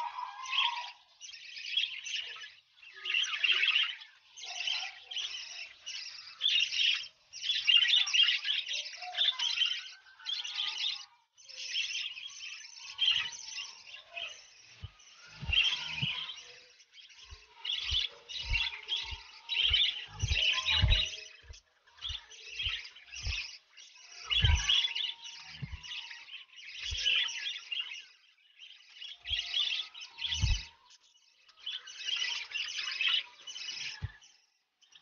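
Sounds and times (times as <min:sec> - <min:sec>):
lovebirds chattering: 0:00.0 - 0:35.0
soft low knocks: 0:17.3 - 0:23.5.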